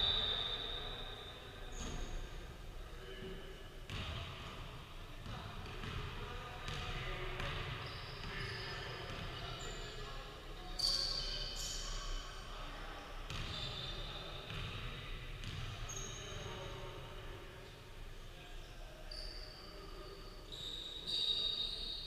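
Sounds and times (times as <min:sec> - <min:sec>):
sneakers squeaking: 0:00.0 - 0:02.5, 0:05.2 - 0:10.0, 0:10.7 - 0:12.2, 0:13.3 - 0:14.7, 0:15.4 - 0:16.9, 0:19.1 - 0:22.0
basketball bouncing: 0:06.7 - 0:07.7.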